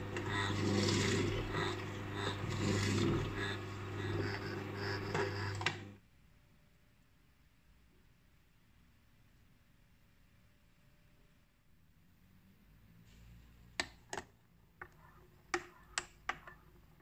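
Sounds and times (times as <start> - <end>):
juicer motor hum: 0.0 - 6.0.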